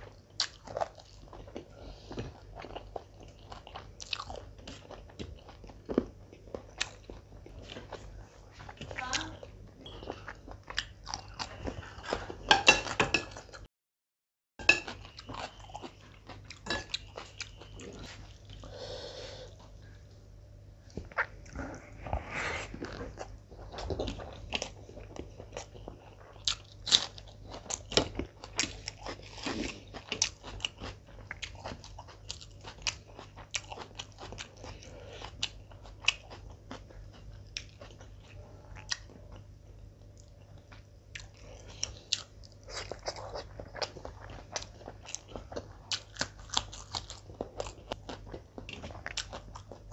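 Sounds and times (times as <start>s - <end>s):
chewing with wet mouth smacks: 0.0s - 9.0s, 9.8s - 12.4s, 22.8s - 49.9s.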